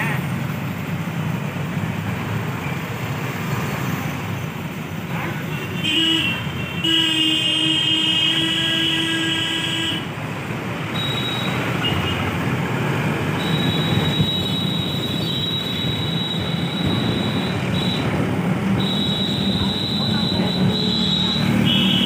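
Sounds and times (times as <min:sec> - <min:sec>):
road vehicle rumbling: 0:00.0 - 0:22.0
vehicle horn blaring: 0:05.6 - 0:10.0, 0:13.4 - 0:18.2, 0:18.8 - 0:22.0.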